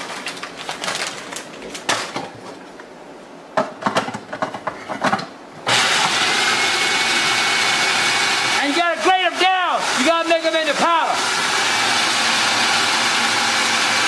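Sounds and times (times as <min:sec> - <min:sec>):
snacks rattling into plastic bowl: 0:00.0 - 0:02.3
food processor motor whirring: 0:05.7 - 0:14.0.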